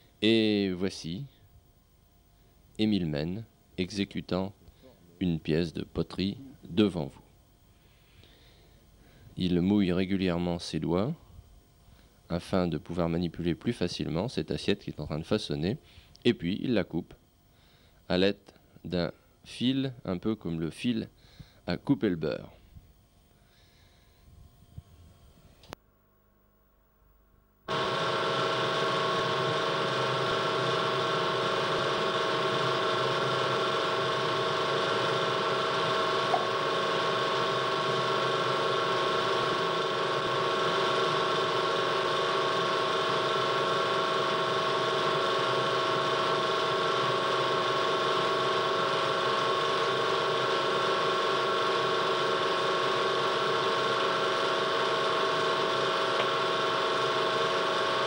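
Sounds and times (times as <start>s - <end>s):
electric motor humming: 27.7s - 58.0s.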